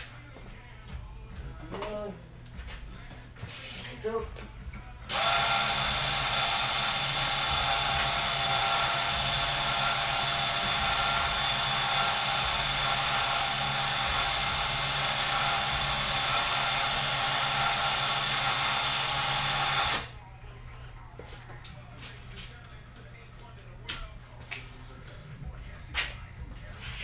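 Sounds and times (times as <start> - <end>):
electric winch motor whining: 5.1 - 20.1.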